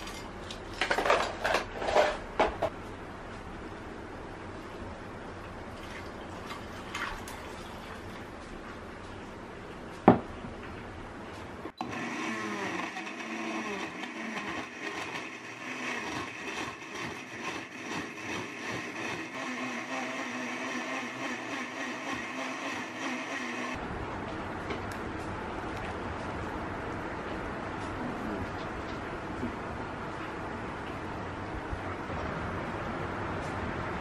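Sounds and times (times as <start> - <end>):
blender crushing ice: 11.8 - 23.8.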